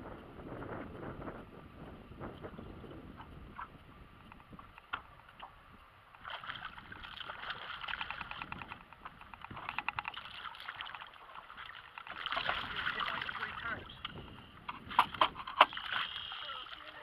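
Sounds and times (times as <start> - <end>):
water splashing: 5.2 - 17.0
reel clicks: 7.7 - 11.1.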